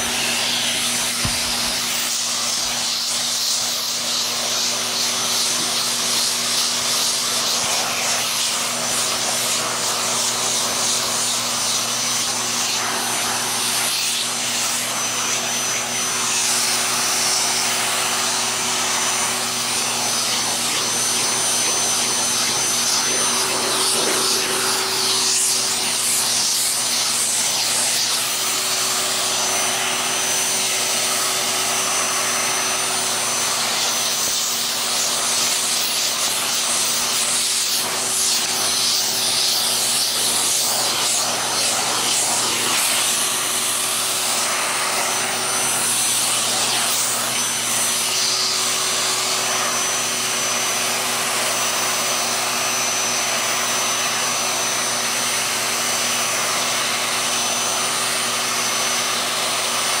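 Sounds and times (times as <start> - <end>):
brush rubbing over fur: 0.0 - 31.2, 33.5 - 48.5
vacuum cleaner motor whining: 0.0 - 60.0.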